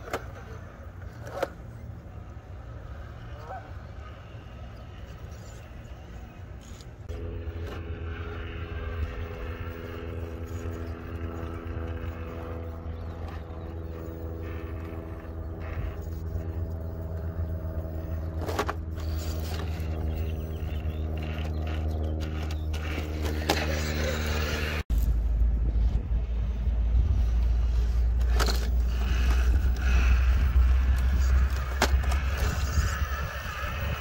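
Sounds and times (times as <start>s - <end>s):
electric motor whining: 5.4s - 24.8s, 27.2s - 34.0s.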